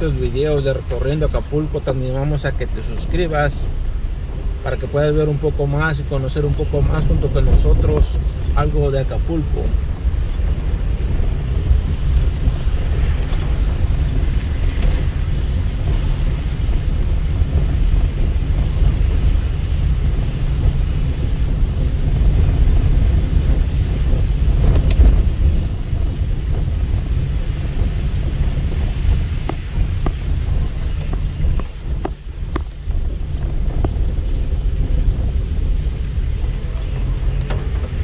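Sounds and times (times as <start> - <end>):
moving vehicle rumble: 0.0 - 38.0
wind buffeting microphone: 0.0 - 38.0.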